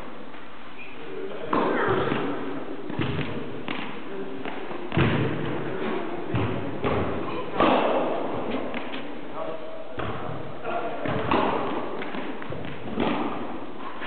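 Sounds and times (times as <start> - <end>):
tennis ball struck by rackets: 2.9 - 5.5, 6.3 - 9.1, 11.0 - 13.6
tennis ball bouncing on court: 2.9 - 7.9, 8.5 - 9.1, 11.0 - 13.6.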